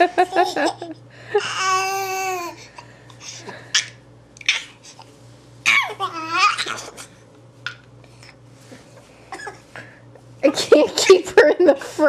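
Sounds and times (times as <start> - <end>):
baby laughing: 0.2 - 2.6, 5.6 - 7.1
baby squealing: 5.7 - 6.8.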